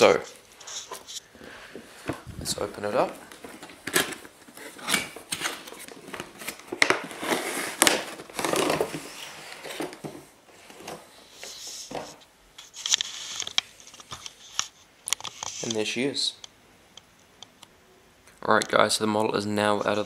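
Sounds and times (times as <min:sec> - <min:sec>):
cardboard and foam rustling: 0:00.0 - 0:13.5.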